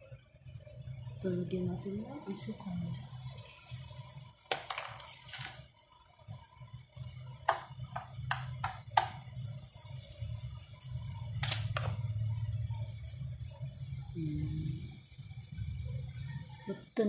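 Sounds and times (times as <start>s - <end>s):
spoon tapping on a pan: 7.4s - 9.3s.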